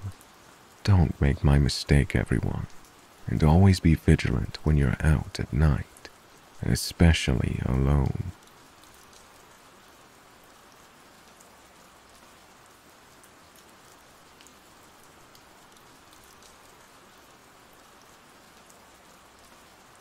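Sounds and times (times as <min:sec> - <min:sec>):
faint steady rain: 0:00.0 - 0:20.0.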